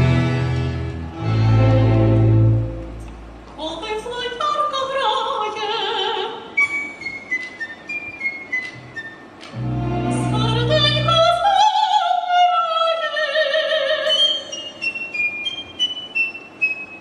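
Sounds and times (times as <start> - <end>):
folk orchestra playing: 0.0 - 3.0, 8.6 - 11.4
woman singing: 3.6 - 6.6, 10.0 - 14.5.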